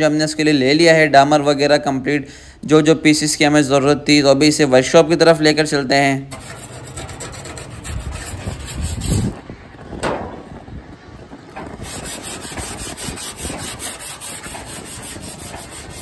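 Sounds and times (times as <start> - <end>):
abrasive sheet rubbing metal roof: 6.3 - 9.6, 11.5 - 16.0.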